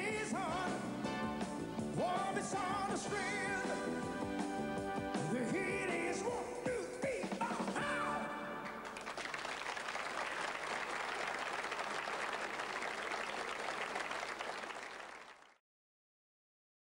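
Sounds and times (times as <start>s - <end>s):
audience applauding: 8.7s - 15.6s.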